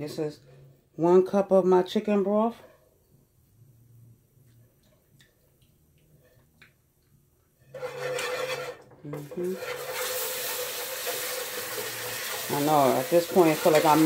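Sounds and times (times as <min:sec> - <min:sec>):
broth sizzling in hot pan: 0:09.2 - 0:14.0.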